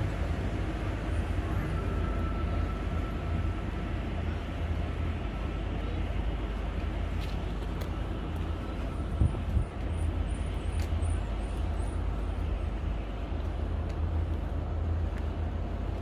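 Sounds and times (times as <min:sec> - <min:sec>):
wind buffeting microphone: 0:08.4 - 0:10.3.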